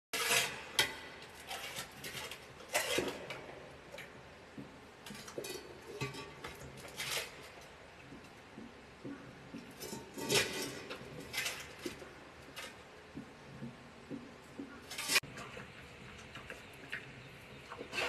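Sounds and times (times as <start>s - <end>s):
bowl clinking and scraping on brick: 9.6s - 12.1s.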